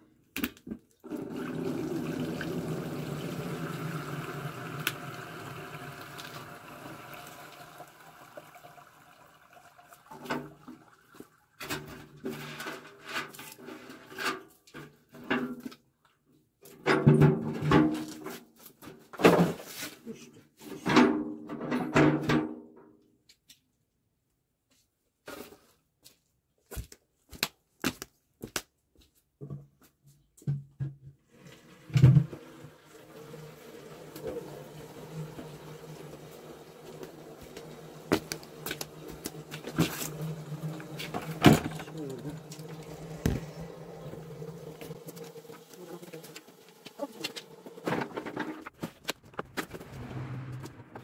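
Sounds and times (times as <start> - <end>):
liquid pouring through strainer: 1.0 - 12.1.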